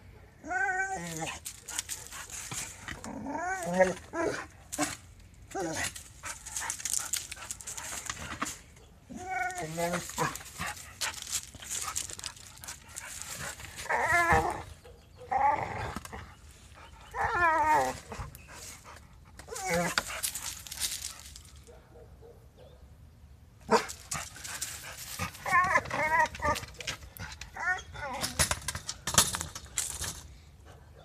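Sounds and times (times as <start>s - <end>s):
dog whining: 0.4s - 1.4s, 2.9s - 4.5s, 9.1s - 10.4s, 13.8s - 16.2s, 16.9s - 18.4s, 19.5s - 20.1s, 25.2s - 28.5s
rustling and scraping in dry leaves: 0.7s - 14.8s, 15.5s - 21.7s, 23.7s - 30.4s.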